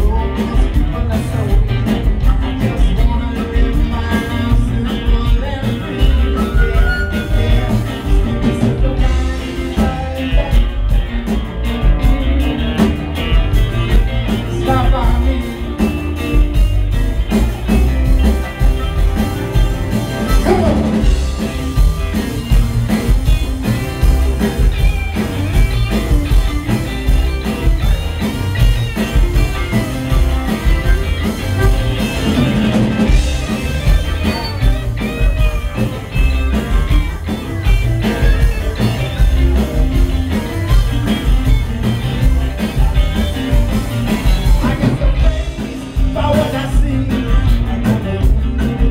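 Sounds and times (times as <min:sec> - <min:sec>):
drums: 0:00.0 - 0:48.9
electric guitars: 0:00.0 - 0:48.9
reggae band playing: 0:00.0 - 0:48.9
upright bass: 0:00.0 - 0:48.9
harmonica playing lead: 0:06.0 - 0:08.4, 0:18.6 - 0:44.8.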